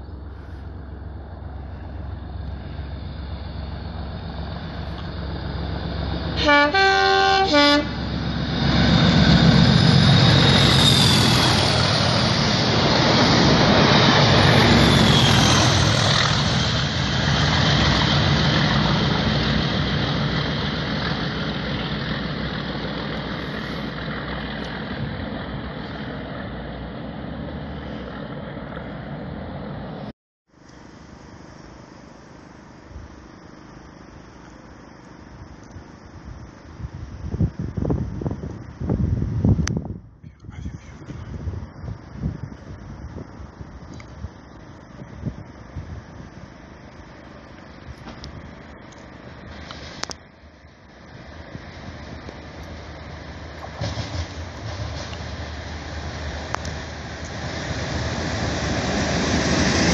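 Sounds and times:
diesel locomotive engine: 0:00.0 - 0:59.9
train horn blasts: 0:06.4 - 0:08.0
high wheel squeal: 0:07.1 - 0:18.2
train wheels rolling: 0:07.4 - 0:26.1, 0:51.0 - 0:59.9.

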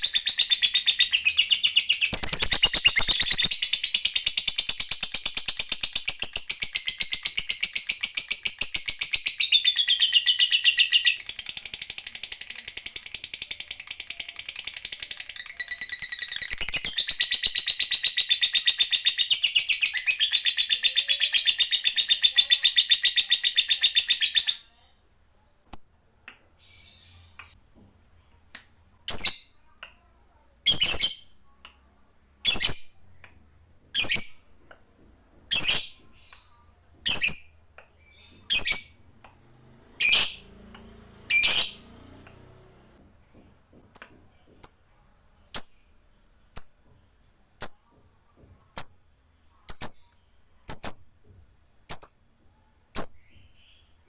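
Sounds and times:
lovebird chattering trill: 0:00.0 - 0:24.7.

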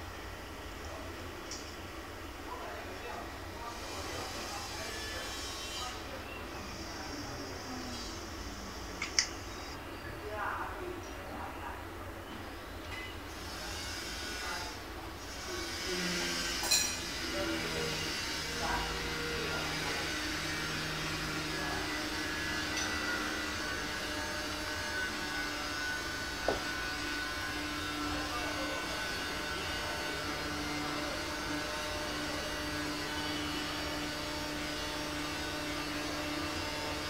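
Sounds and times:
machine hum and hiss: 0:00.0 - 0:10.6, 0:12.3 - 0:37.0.

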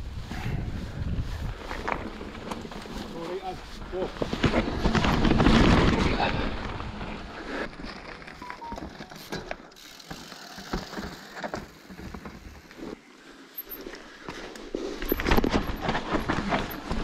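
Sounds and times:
bike rattling and clattering: 0:00.6 - 0:17.0.

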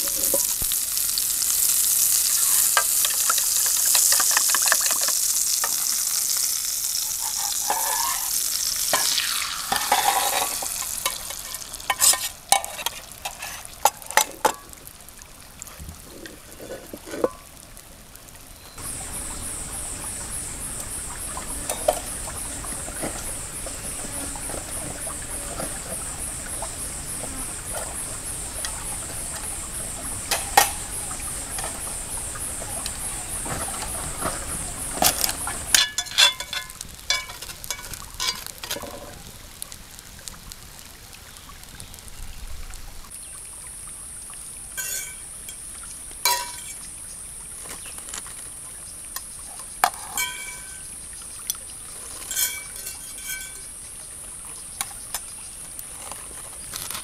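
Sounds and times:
metal cutlery clinking on skillet: 0:01.6 - 0:14.8, 0:30.3 - 0:31.8, 0:35.0 - 0:39.1, 0:44.8 - 0:45.6, 0:46.2 - 0:46.8, 0:49.8 - 0:50.9, 0:51.5 - 0:53.8
stream rushing: 0:44.7 - 0:48.4, 0:49.8 - 0:55.2.

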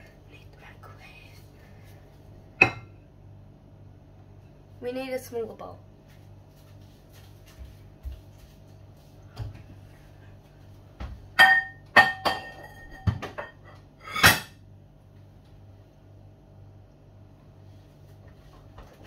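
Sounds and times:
ceramic bowls clinking: 0:02.6 - 0:03.0, 0:11.4 - 0:14.6.

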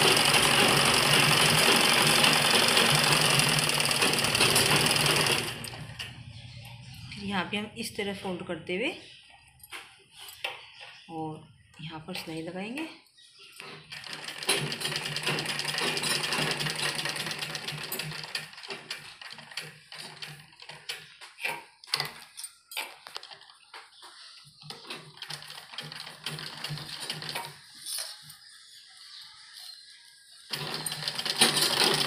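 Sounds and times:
sewing machine clicks: 0:00.0 - 0:06.1, 0:13.8 - 0:22.2, 0:30.5 - 0:32.0
treadle sewing machine stitching: 0:00.0 - 0:06.1, 0:13.8 - 0:21.1, 0:24.7 - 0:28.0, 0:30.5 - 0:32.0.

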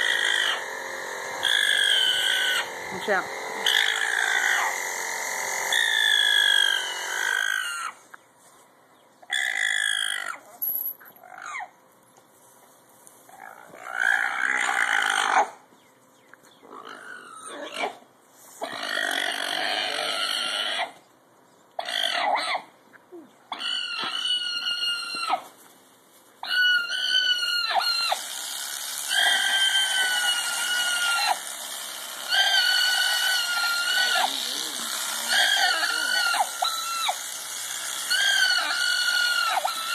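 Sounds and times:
alpaca crying out: 0:00.0 - 0:00.7, 0:01.4 - 0:02.8, 0:03.6 - 0:04.8, 0:05.7 - 0:08.0, 0:13.3 - 0:15.6, 0:21.8 - 0:22.7, 0:23.5 - 0:25.5, 0:26.4 - 0:28.4, 0:29.0 - 0:31.5, 0:32.2 - 0:39.9.

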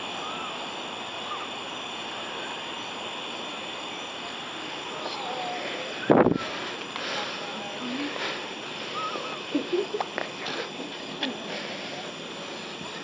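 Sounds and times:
steady background hiss: 0:00.0 - 0:13.0.

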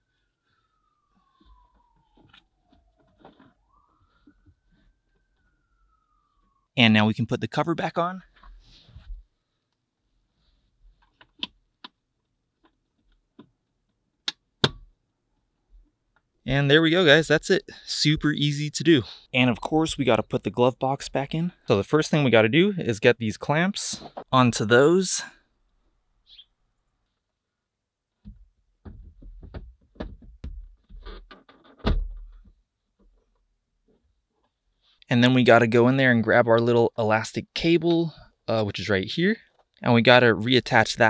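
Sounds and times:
plastic glove box knocking and clicking: 0:28.3 - 0:31.0.

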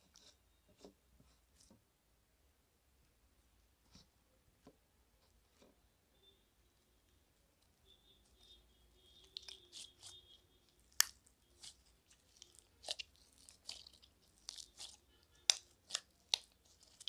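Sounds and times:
foam bead slime crunching: 0:08.4 - 0:17.0.

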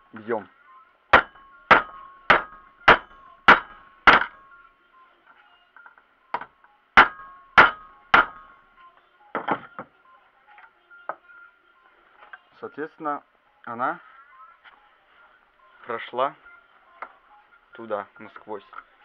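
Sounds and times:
hammer striking metal socket: 0:01.2 - 0:04.4, 0:06.4 - 0:08.5.

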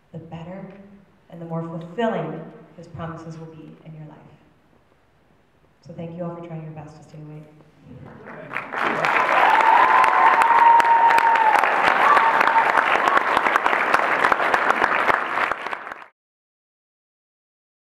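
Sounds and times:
audience applause: 0:08.0 - 0:16.1.

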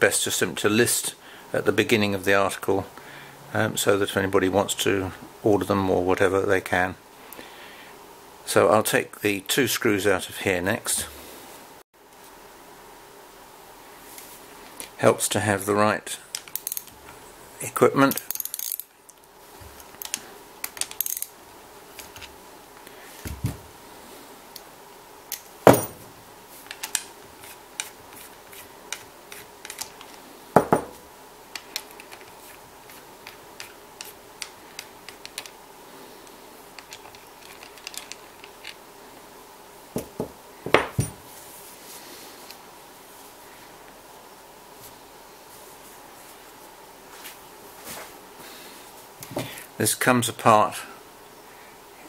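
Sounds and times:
metal clicks of tools and screws: 0:16.4 - 0:16.9, 0:18.1 - 0:18.9, 0:20.0 - 0:21.3
metal knocking on bench: 0:30.6 - 0:31.0.

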